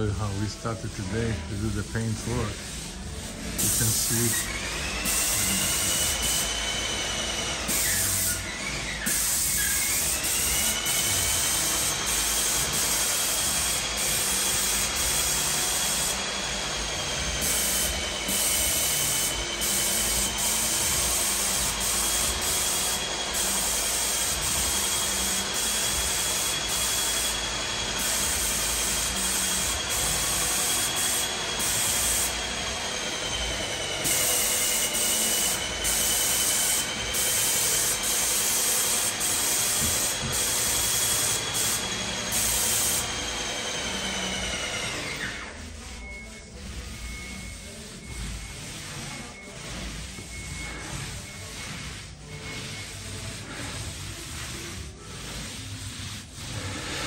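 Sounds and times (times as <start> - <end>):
paint sprayer hissing: 0.2 - 6.8, 7.6 - 16.2, 17.4 - 32.4, 34.0 - 43.2, 50.9 - 56.8.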